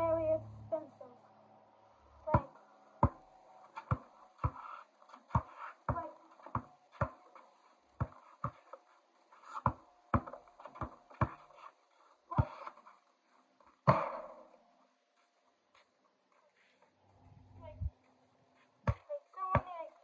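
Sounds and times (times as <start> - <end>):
basketball bouncing on concrete: 2.3 - 8.8, 9.5 - 11.7, 12.3 - 12.9, 13.8 - 14.5, 18.8 - 20.0.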